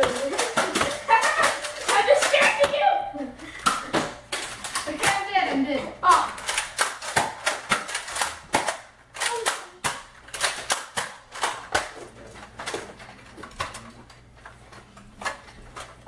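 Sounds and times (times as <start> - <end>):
toy blasters clicking: 0.0 - 2.7, 6.1 - 11.9.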